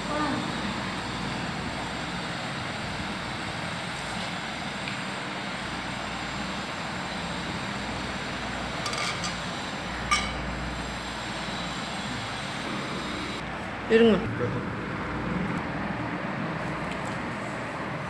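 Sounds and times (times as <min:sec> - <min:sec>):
metallic clink: 0:08.8 - 0:09.4, 0:10.1 - 0:10.4.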